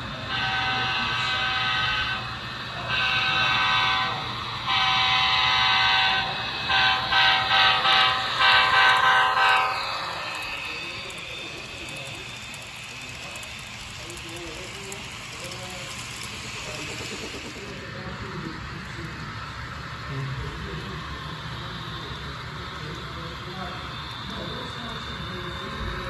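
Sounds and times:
faint train rolling: 0.0 - 26.0
model train horn: 0.3 - 2.3, 2.9 - 9.8.

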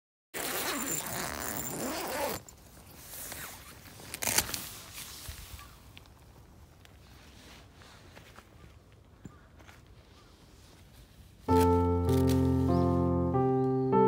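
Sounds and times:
tent zipper pulled open: 0.4 - 5.3
handling sounds: 11.5 - 13.0.

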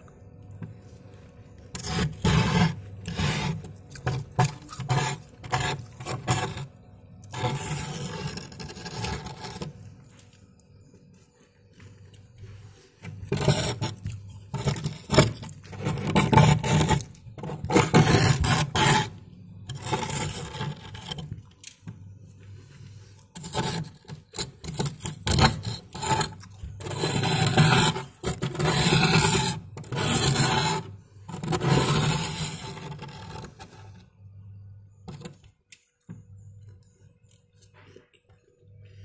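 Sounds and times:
tool scraping freezer frost: 1.5 - 10.3, 11.9 - 34.0, 35.1 - 35.4.

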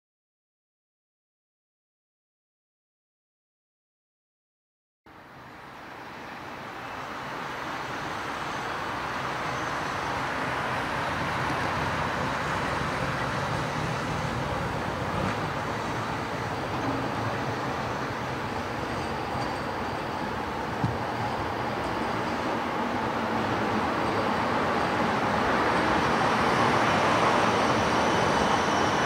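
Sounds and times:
street traffic: 5.1 - 29.0
tram rolling on track: 5.1 - 29.0.

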